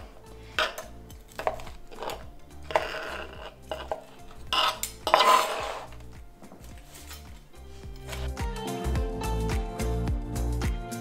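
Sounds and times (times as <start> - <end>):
knife and fork on cutting board: 0.5 - 6.0, 6.8 - 8.3.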